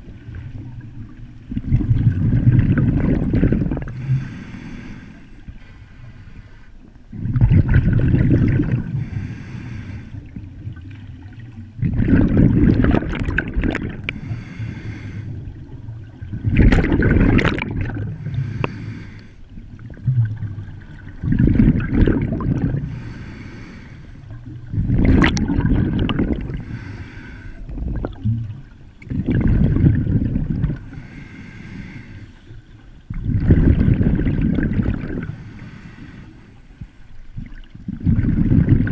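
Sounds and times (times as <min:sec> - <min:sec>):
diver exhaling bubbles underwater: 0:01.5 - 0:04.3, 0:07.1 - 0:09.1, 0:10.2 - 0:14.5, 0:15.4 - 0:19.0, 0:19.8 - 0:23.1, 0:24.3 - 0:26.9, 0:27.6 - 0:30.9, 0:33.1 - 0:35.4, 0:37.4 - 0:38.9.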